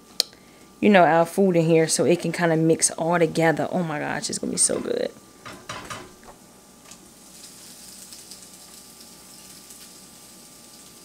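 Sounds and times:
sauce sizzling faintly in a skillet: 6.8s - 11.0s.

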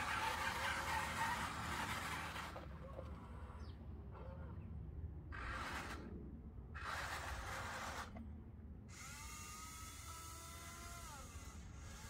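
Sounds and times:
small electric motor whining: 8.9s - 12.0s.

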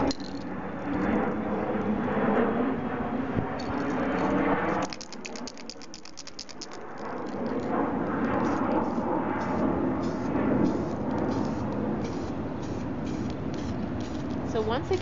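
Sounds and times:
spray can ball rattling: 0.0s - 0.5s, 3.6s - 15.0s.

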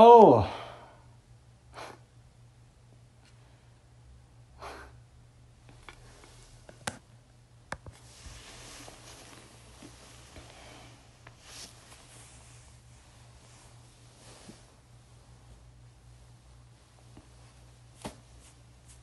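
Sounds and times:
faint low hum: 0.0s - 19.0s
bedding rustling: 8.0s - 19.0s
soft breaths: 8.0s - 19.0s.

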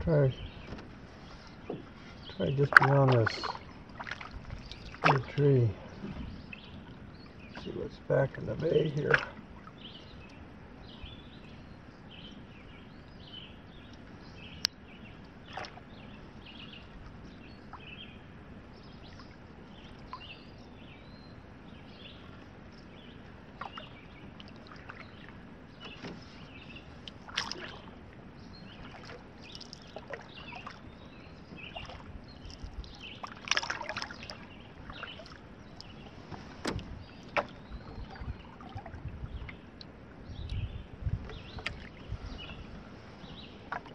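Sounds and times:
birds calling: 0.0s - 43.9s
paddle strokes in water: 0.0s - 43.9s
water splashing and dripping: 1.7s - 5.5s, 27.0s - 28.0s, 31.6s - 35.9s.

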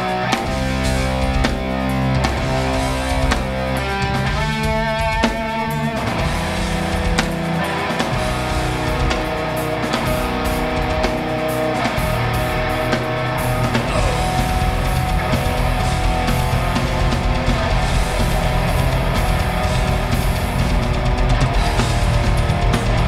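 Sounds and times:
bass guitar: 0.0s - 23.0s
distorted electric guitars: 0.0s - 23.0s
drum kit with cymbals: 0.0s - 23.0s.

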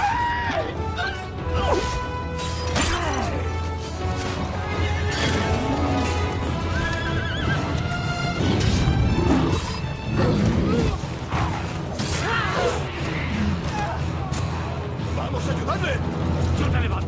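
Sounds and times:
orchestral film score: 0.0s - 17.0s
gliding animal cries: 6.6s - 7.8s.

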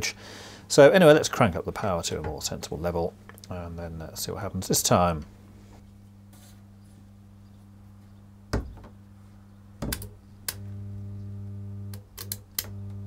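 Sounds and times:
mains hum: 0.0s - 13.0s
sharp metallic clicks and snaps: 11.9s - 12.8s.

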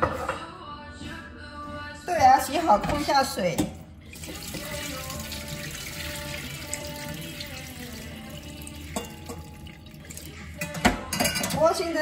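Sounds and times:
tap water running into sink: 4.2s - 10.4s.

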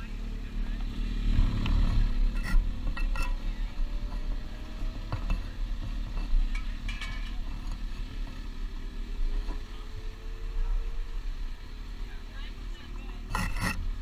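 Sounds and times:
handling clicks and knocks: 1.6s - 8.4s.

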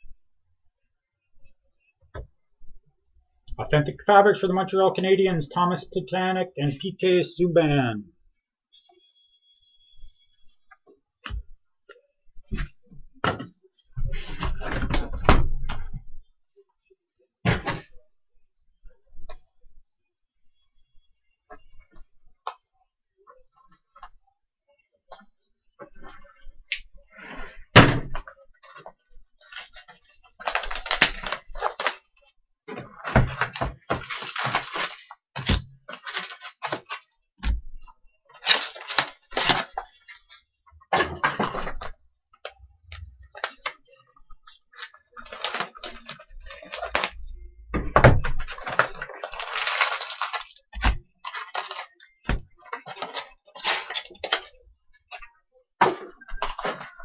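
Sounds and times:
cardboard and wrappers tearing: 29.4s - 32.2s, 33.4s - 37.1s, 38.3s - 40.2s, 44.7s - 47.3s, 48.5s - 54.5s.

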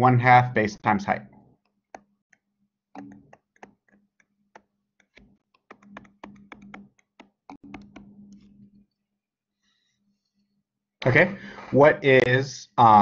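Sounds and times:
stylus tapping on touchscreen: 1.6s - 9.0s.

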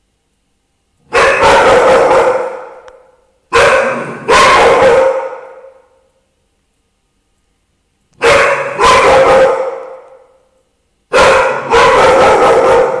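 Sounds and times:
dog barking loudly: 1.1s - 2.9s, 3.5s - 5.9s, 8.2s - 10.3s, 11.1s - 13.0s.

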